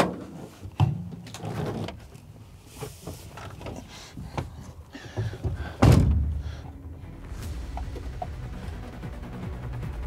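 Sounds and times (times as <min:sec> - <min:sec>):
truck cab door clunks and knocks: 0:05.4 - 0:06.4
loud thump: 0:05.8 - 0:06.5.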